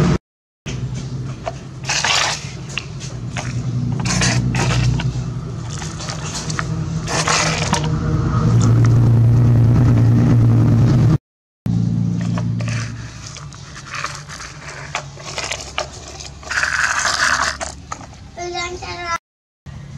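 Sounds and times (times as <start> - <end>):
sand scraping and pouring: 1.8 - 9.0, 12.2 - 18.0.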